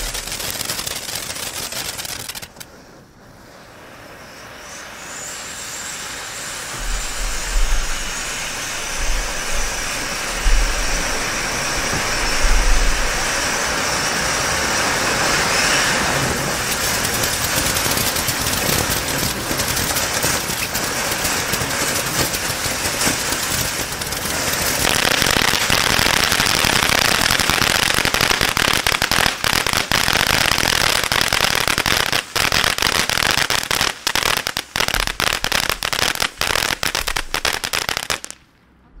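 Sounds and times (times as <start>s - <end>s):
fireworks fountain hissing: 0.0s - 38.4s
fireworks crackling: 0.0s - 38.5s
low thumps: 6.8s - 13.3s.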